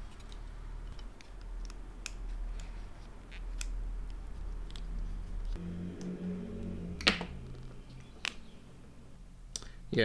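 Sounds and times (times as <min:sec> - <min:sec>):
small parts clicking and tapping: 0:00.0 - 0:04.9
low steady hum: 0:00.0 - 0:10.0.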